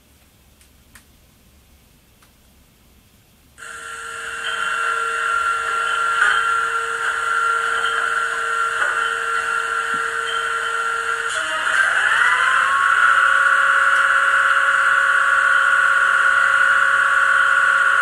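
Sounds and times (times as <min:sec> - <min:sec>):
diesel engine hum with whine: 0:03.6 - 0:18.0.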